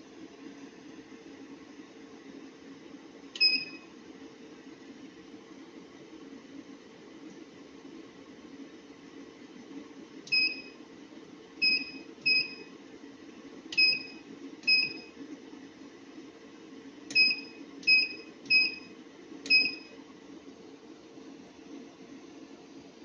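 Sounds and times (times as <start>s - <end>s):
steady low hum: 0.0s - 23.0s
keypad beeps with clicks: 3.4s - 3.8s, 10.3s - 10.8s, 11.6s - 12.7s, 13.8s - 15.1s, 17.1s - 18.9s, 19.5s - 19.9s.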